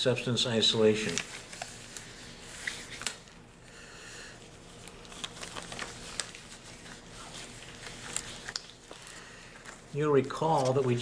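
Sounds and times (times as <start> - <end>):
soft rustling: 4.6 - 11.0.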